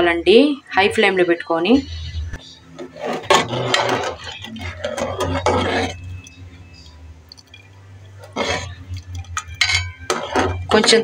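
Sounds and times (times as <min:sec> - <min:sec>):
metal ladle scraping a metal pot: 0:02.8 - 0:06.9, 0:07.6 - 0:11.0.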